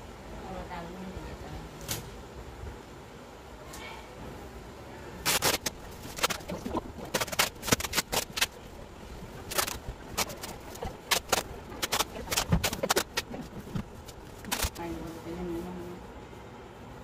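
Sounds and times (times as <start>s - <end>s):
packing tape ripping off roll: 5.2s - 8.6s, 9.5s - 14.8s.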